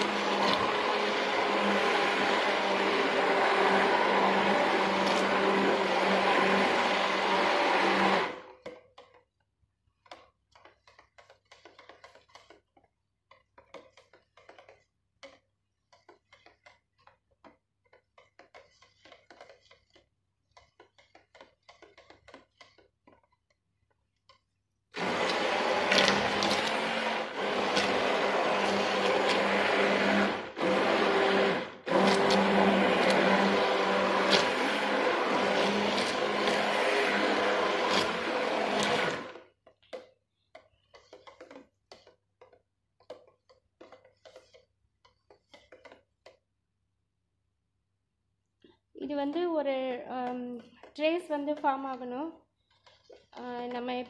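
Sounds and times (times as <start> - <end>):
stick blender motor running: 0.0 - 9.1, 24.9 - 40.0
faint clicks and scrapes: 8.5 - 30.2, 31.0 - 46.7, 50.2 - 54.0.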